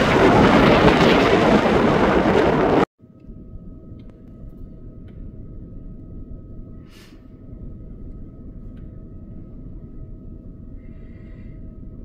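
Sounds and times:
fire engine pump rumble and whine: 3.2s - 12.0s.

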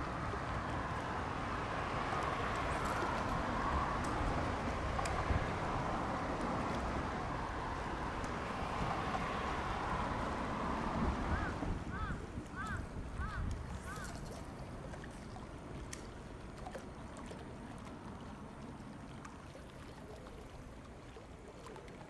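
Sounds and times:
wind rumbling on microphone: 0.0s - 15.9s
traffic on bridge overhead: 0.0s - 19.4s.

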